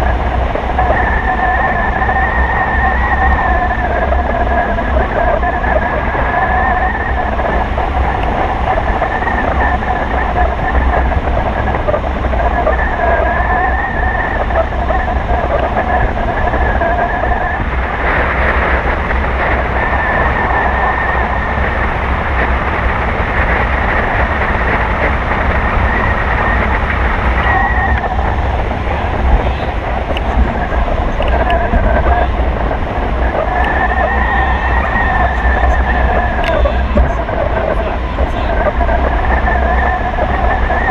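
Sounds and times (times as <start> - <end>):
wind buffeting microphone: 0.0 - 40.9
faint wavering whistle: 0.1 - 11.2, 25.8 - 32.4, 33.3 - 40.9.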